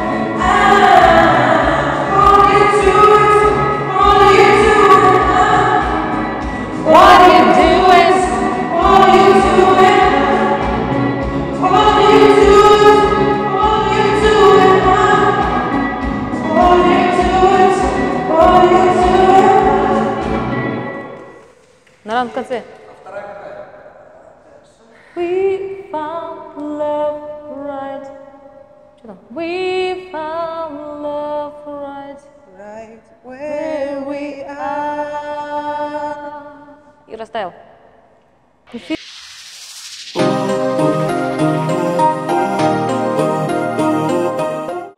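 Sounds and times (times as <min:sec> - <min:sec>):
woman singing unaccompanied: 0:00.0 - 0:06.0, 0:06.8 - 0:10.7, 0:11.6 - 0:15.6, 0:16.4 - 0:20.2, 0:29.0 - 0:36.8.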